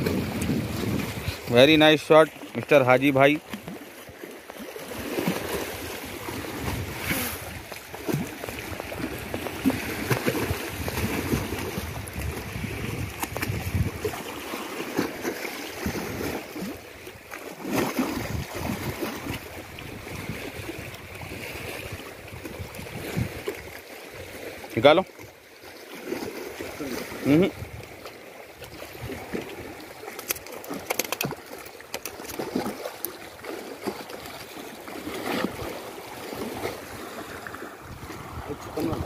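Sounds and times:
wind buffeting the microphone: 0:00.0 - 0:01.6, 0:06.2 - 0:14.2, 0:18.1 - 0:23.7, 0:36.8 - 0:39.0
waves lapping against stone steps: 0:00.0 - 0:39.0.

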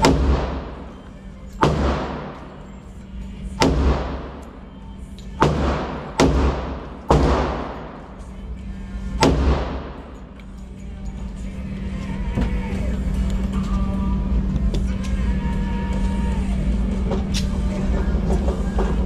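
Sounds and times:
pistol shots echoing indoors: 0:00.0 - 0:10.4.

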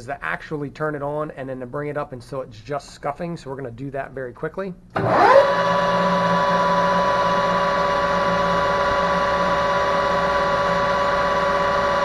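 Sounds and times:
metal lathe whining: 0:05.0 - 0:12.0.

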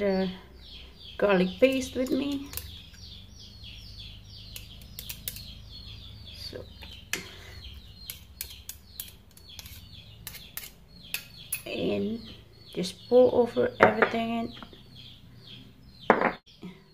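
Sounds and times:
birds chirping: 0:00.0 - 0:16.9
chopsticks and spoon clicking on plate: 0:04.5 - 0:05.5.

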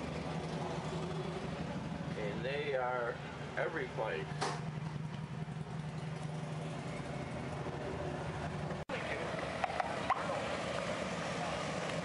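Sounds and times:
motorcycles running: 0:00.0 - 0:12.0.

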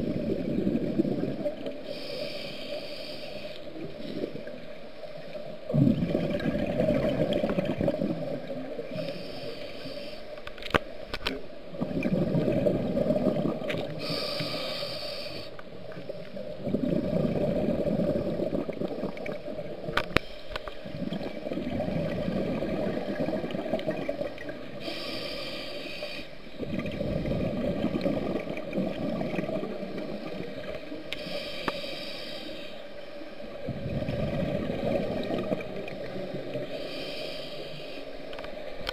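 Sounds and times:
regulator inhale hiss: 0:00.0 - 0:05.6, 0:08.0 - 0:10.4, 0:13.9 - 0:17.1, 0:19.9 - 0:21.3, 0:24.2 - 0:27.4, 0:29.7 - 0:33.6, 0:35.9 - 0:38.7
exhaust bubbles rumbling: 0:05.7 - 0:08.5, 0:11.8 - 0:13.9, 0:16.6 - 0:19.8, 0:20.9 - 0:24.6.

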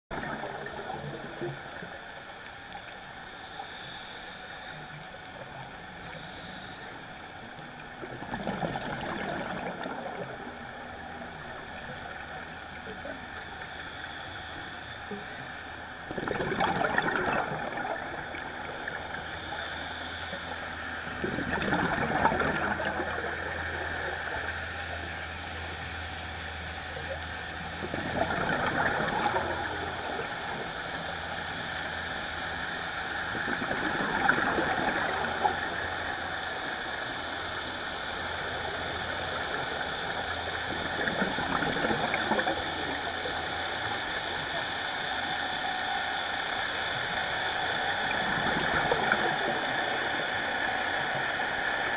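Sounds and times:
underwater bubbles gurgling: 0:00.1 - 0:51.9.

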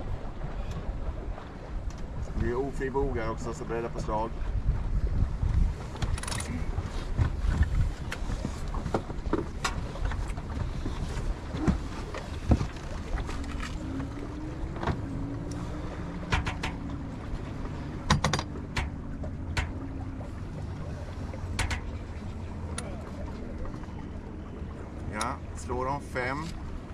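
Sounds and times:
water along hull: 0:00.0 - 0:26.9
wind on microphone: 0:04.0 - 0:23.4
deck gear clicks and knocks: 0:16.3 - 0:17.0, 0:18.0 - 0:19.8, 0:21.5 - 0:21.9.

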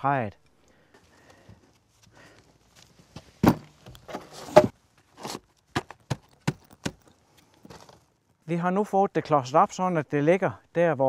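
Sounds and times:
wood scraping: 0:03.1 - 0:08.1
heavy wooden beam thuds: 0:03.4 - 0:03.8.

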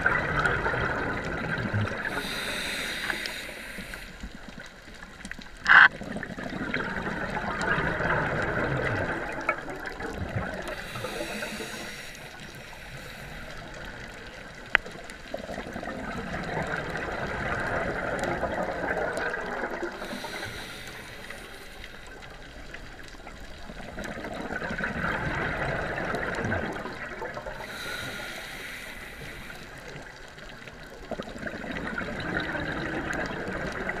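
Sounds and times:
regulator inhalation hiss: 0:02.1 - 0:04.5, 0:10.7 - 0:13.9, 0:20.0 - 0:22.2, 0:27.6 - 0:30.0.

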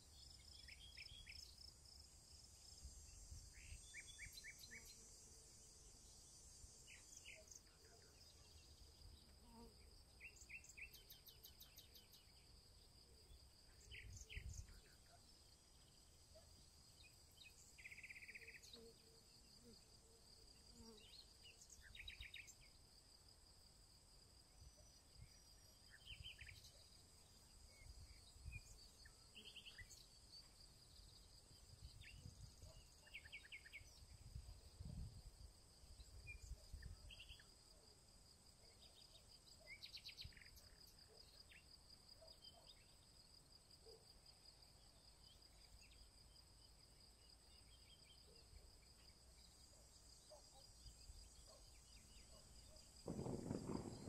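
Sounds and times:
wind rumble on microphone: 0:34.0 - 0:35.4, 0:53.0 - 0:54.0
insects trilling: 0:44.6 - 0:54.0.

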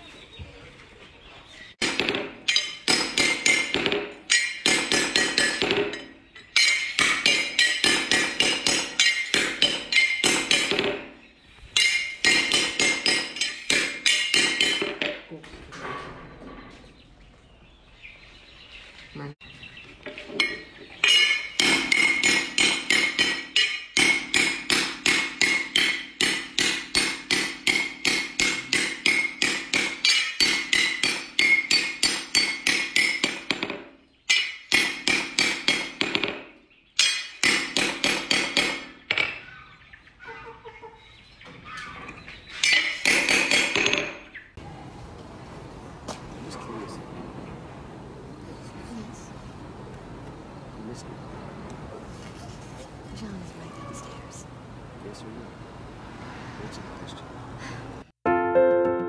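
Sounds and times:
hammer striking steel on anvil: 0:01.8 - 0:11.1, 0:11.8 - 0:15.2, 0:20.4 - 0:39.4, 0:42.6 - 0:44.2.

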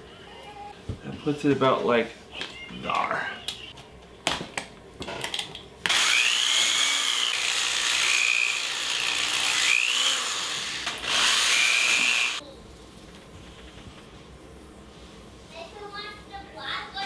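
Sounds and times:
rotary power tool whirring: 0:05.8 - 0:12.4.

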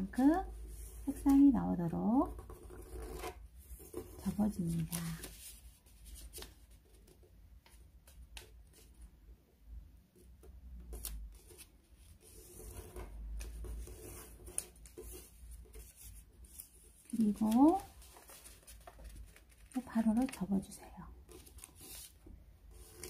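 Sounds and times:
paper rustling: 0:02.5 - 0:09.0, 0:10.8 - 0:23.0
paper folds clicking: 0:10.9 - 0:11.7, 0:15.7 - 0:20.5.

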